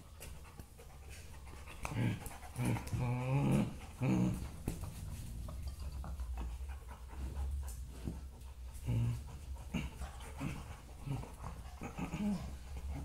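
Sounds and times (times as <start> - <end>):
dog panting: 0.0 - 13.0
dog growling low: 1.8 - 6.7, 8.7 - 13.0.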